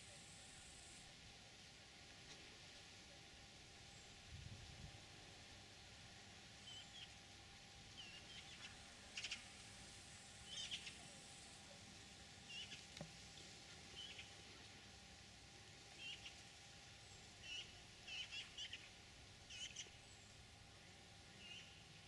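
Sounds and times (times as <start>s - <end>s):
quiet steady hiss: 0.0s - 22.0s
small bird chirping: 6.6s - 7.2s, 8.0s - 9.5s, 10.4s - 11.1s, 19.5s - 20.3s.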